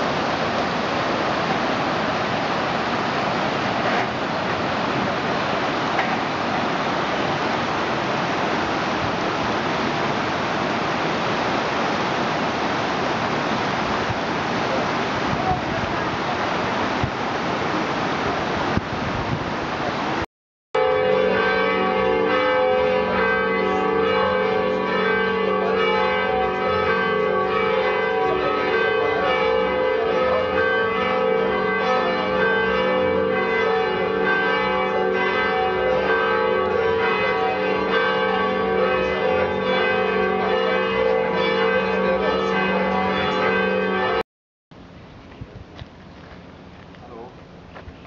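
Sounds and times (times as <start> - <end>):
church bells pealing: 20.8 - 44.2.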